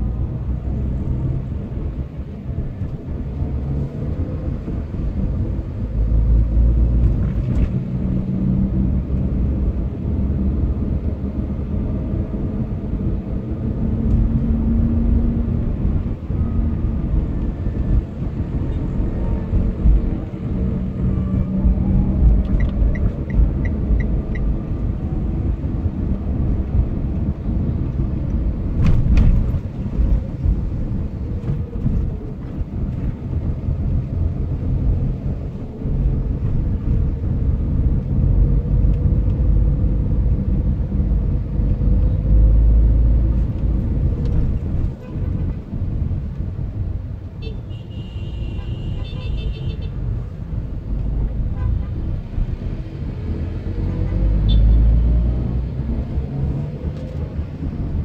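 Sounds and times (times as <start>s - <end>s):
car road and engine rumble: 0.0s - 58.0s.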